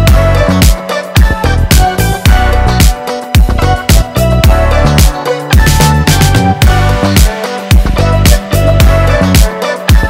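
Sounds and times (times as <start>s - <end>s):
low bass line: 0.0s - 0.6s, 1.4s - 2.8s, 3.4s - 9.3s
drum beat: 0.1s - 10.0s.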